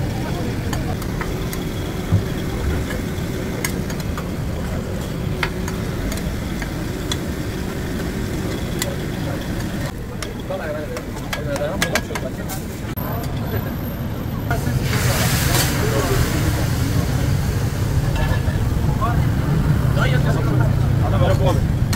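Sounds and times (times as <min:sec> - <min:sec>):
steady low rumble: 0:14.5 - 0:21.9.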